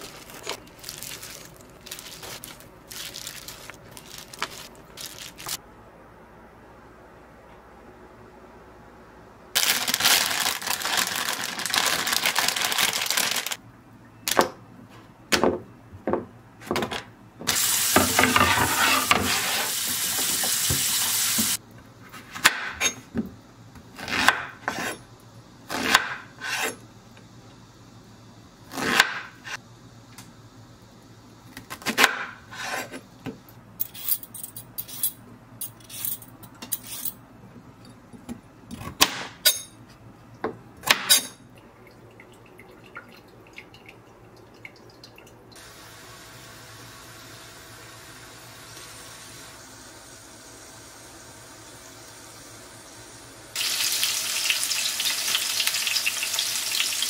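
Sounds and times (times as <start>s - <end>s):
loud rustling noise: 0.0s - 5.6s, 9.6s - 13.6s.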